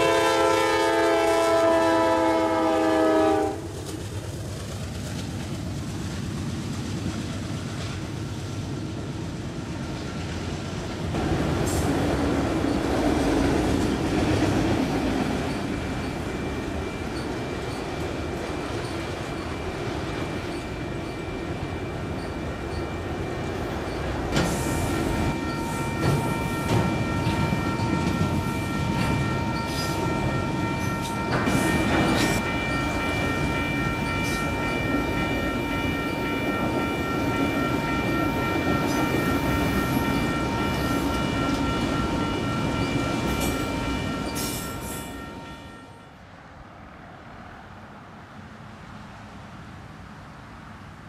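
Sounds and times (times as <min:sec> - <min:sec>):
steady high ringing tones: 0:14.6 - 0:46.2
train wheels knocking over rail joints: 0:23.9 - 0:35.3.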